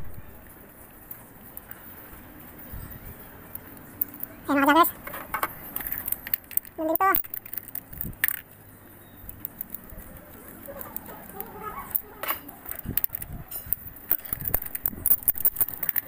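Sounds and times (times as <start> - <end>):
socket ratchet clicking: 5.1 - 8.5, 10.9 - 16.0.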